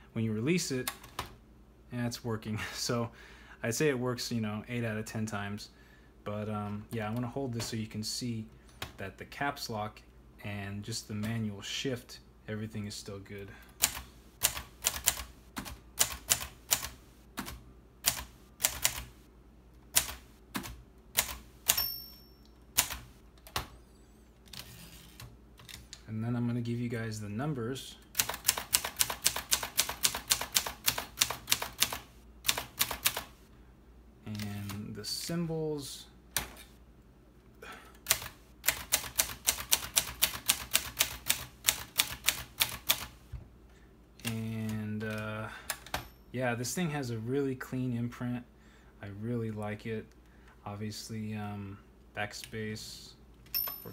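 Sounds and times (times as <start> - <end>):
manual typewriter keys clacking: 13.8 - 19.1, 20.0 - 21.9, 22.7 - 23.7, 28.1 - 33.3, 38.0 - 43.1
typewriter bell ringing: 21.7 - 22.6.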